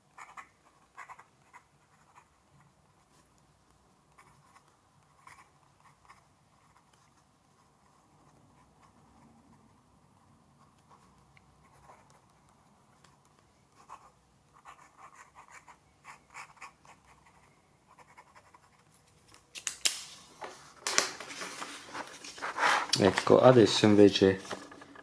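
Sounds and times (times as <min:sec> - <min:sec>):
pen scratching on paper: 0:00.0 - 0:03.4, 0:04.0 - 0:18.9
paper rustling: 0:19.0 - 0:25.0.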